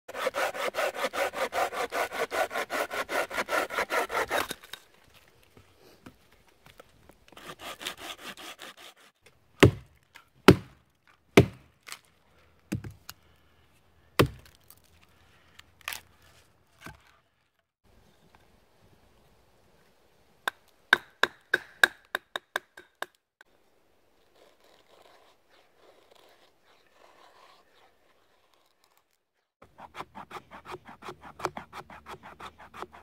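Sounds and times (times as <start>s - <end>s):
folding saw cutting branch: 0.1s - 4.9s, 7.3s - 10.7s, 14.2s - 17.2s, 24.2s - 33.0s
hatchet chopping wood: 9.6s - 10.8s, 11.4s - 12.0s, 12.7s - 13.0s, 14.2s - 14.6s, 20.5s - 23.2s, 29.8s - 33.0s.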